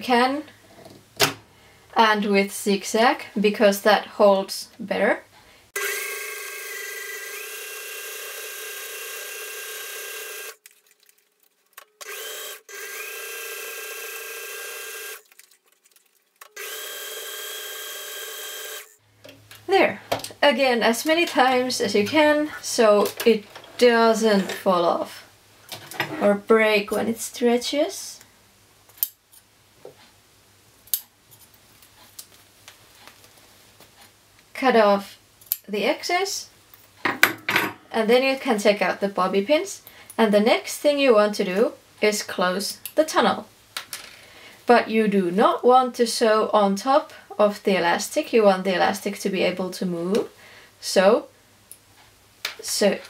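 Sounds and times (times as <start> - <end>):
electric sewing machine running: 5.8 - 10.6, 12.0 - 15.2, 16.6 - 19.0.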